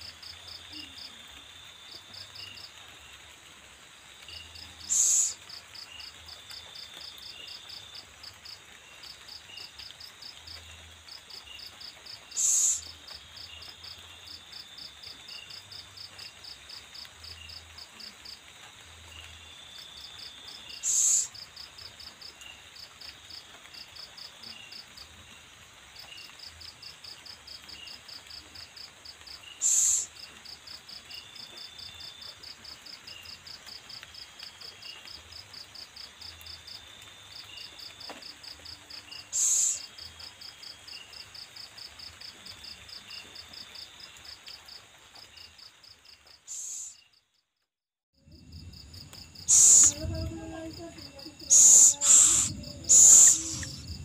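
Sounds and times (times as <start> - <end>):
high insect trills: 0.0 - 47.2, 48.2 - 54.0
insects chirping: 0.0 - 47.4, 48.2 - 54.0
short hissing bursts: 4.9 - 5.4, 12.4 - 12.8, 20.8 - 21.3, 29.6 - 30.1, 39.3 - 39.9, 46.5 - 47.0, 49.5 - 50.1, 51.5 - 54.0.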